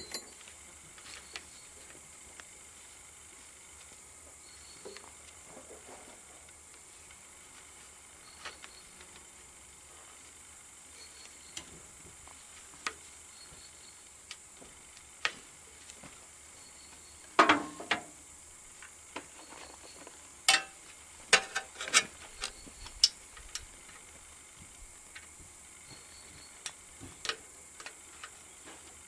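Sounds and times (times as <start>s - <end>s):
metal parts clicking and clinking: 0.0s - 0.4s
faint steady hiss: 0.0s - 29.0s.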